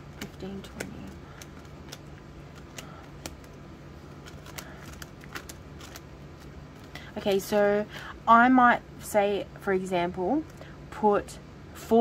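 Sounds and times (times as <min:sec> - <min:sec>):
banknotes and envelopes rustling: 0:00.0 - 0:07.8.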